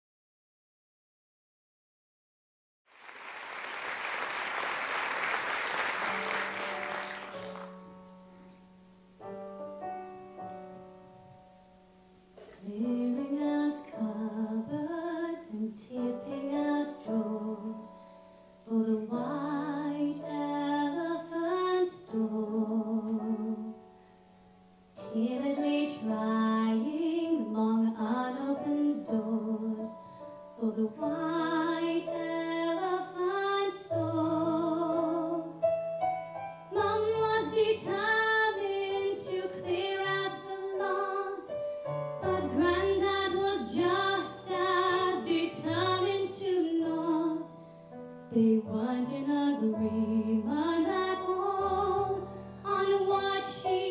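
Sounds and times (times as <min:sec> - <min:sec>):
piano accompaniment: 0:04.1 - 0:53.9
woman singing: 0:12.5 - 0:18.0, 0:18.7 - 0:23.8, 0:25.0 - 0:30.0, 0:30.6 - 0:35.6, 0:36.7 - 0:47.6, 0:48.3 - 0:53.9.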